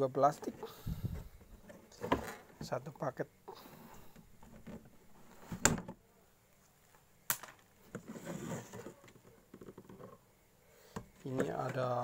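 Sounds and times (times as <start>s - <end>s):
plastic clattering and rustling: 1.2s - 2.9s, 4.2s - 6.0s, 7.4s - 10.2s.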